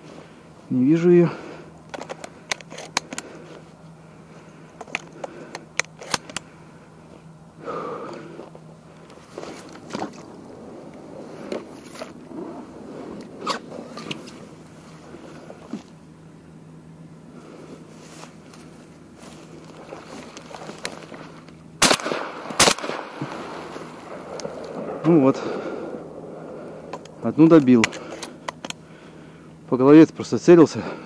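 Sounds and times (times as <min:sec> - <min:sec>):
rustling through wet grass: 0:17.3 - 0:22.2.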